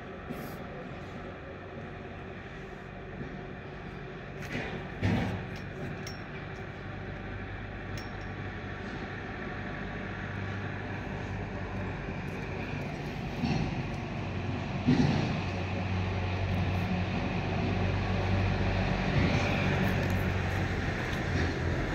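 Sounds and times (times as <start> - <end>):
low mechanical hum: 0.0 - 21.9
light clinks: 5.4 - 6.8, 7.8 - 8.6.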